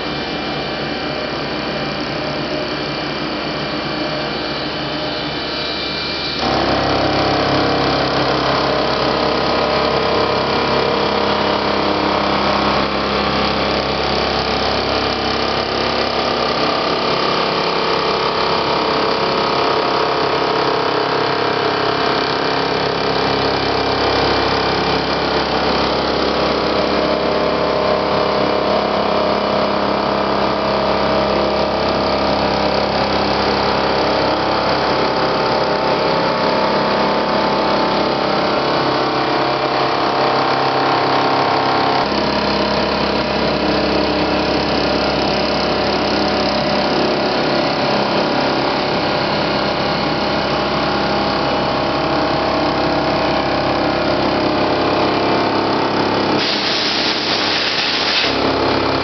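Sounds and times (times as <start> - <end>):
milling machine cutting metal: 4.9 - 15.6, 56.3 - 59.0.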